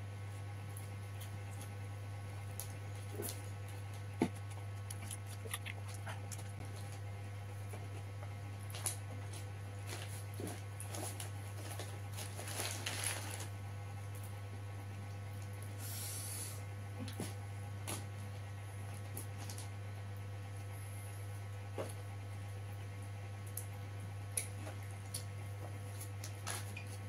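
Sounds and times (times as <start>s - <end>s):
steady low hum: 0.0s - 27.0s
man chewing and smacking lips: 4.3s - 7.0s
fingers picking on crackly paper: 8.7s - 13.5s.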